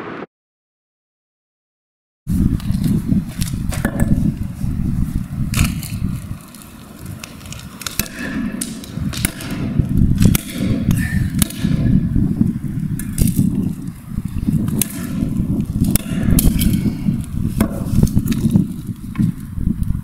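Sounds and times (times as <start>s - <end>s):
steady low rumble: 2.3s - 20.0s
mallet smashing phone on concrete: 10.2s - 11.8s.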